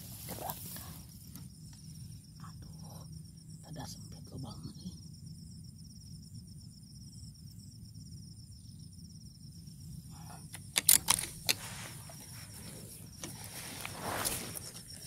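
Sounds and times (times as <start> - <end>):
sharp clicks: 10.5 - 12.3.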